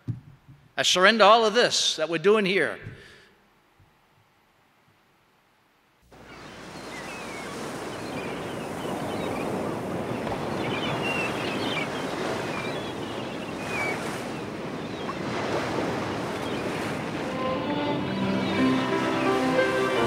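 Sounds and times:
short high bird calls: 0:06.1 - 0:15.2
ocean surf washing in: 0:06.1 - 0:20.0.

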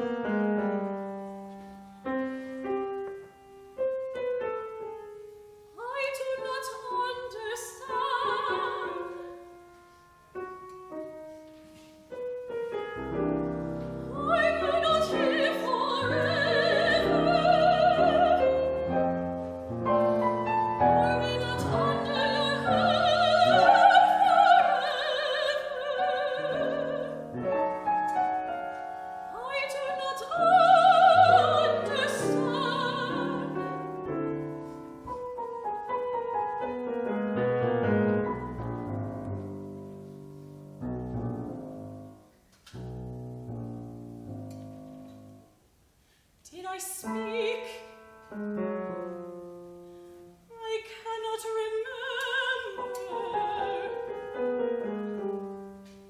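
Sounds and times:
grand piano: 0:00.0 - 0:56.0
operatic singing with vibrato: 0:05.8 - 0:09.5, 0:14.0 - 0:19.1, 0:20.7 - 0:27.8, 0:29.2 - 0:33.9, 0:50.5 - 0:54.4.

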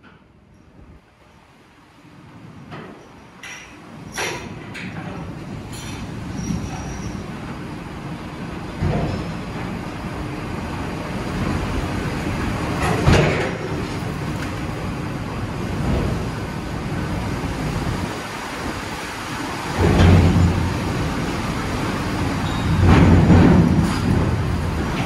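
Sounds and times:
ship machinery rumbling: 0:00.0 - 0:25.0
heavy knocks: 0:22.7 - 0:24.6.

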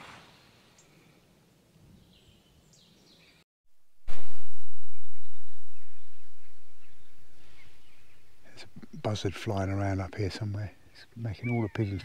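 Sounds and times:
outdoor noise: 0:00.0 - 0:12.0
faint bird calls: 0:04.9 - 0:12.0.

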